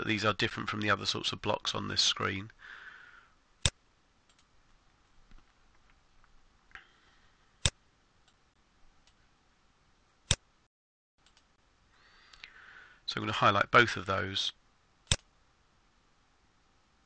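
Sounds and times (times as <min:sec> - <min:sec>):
faint background hiss: 0:00.0 - 0:17.0
computer mouse clicks: 0:11.2 - 0:11.5, 0:15.1 - 0:15.3.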